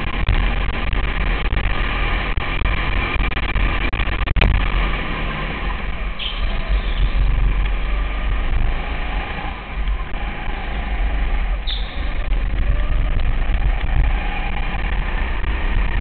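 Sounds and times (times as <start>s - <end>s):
kart engine running: 0.0s - 16.0s
short high squeak: 11.7s - 12.1s.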